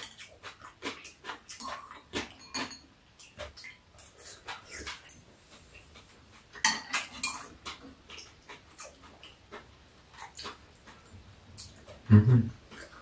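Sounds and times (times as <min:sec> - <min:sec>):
chopsticks clicking on ceramic bowls: 0:00.0 - 0:03.3.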